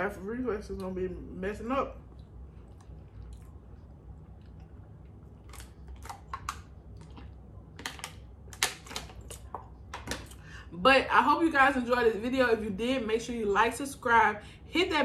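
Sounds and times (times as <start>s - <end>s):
low room hum: 0.0s - 15.0s
plastic bottle crinkling and clicking: 7.8s - 10.3s.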